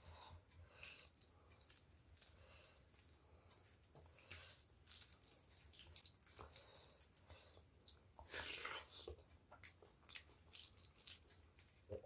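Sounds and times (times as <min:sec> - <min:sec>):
fingers squishing wet food: 0:00.0 - 0:12.0.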